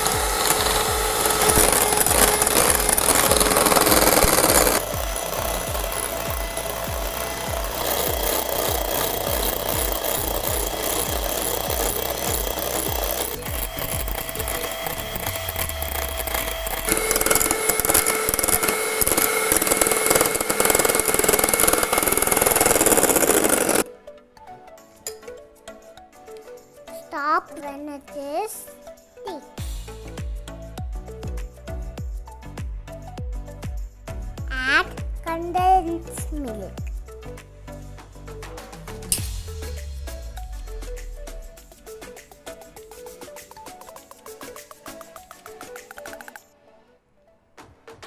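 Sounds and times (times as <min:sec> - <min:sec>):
electric hand mixer running: 0:00.0 - 0:23.9.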